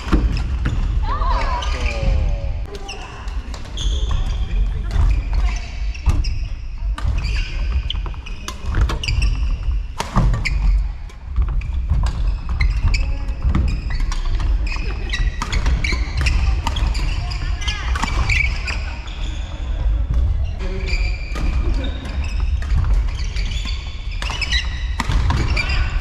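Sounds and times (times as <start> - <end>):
shoes squeaking on court: 0.0 - 26.0.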